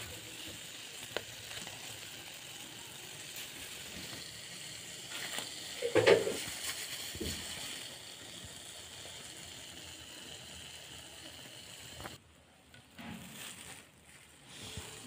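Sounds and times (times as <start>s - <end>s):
oil sizzling in a frying pan: 0.0s - 12.2s.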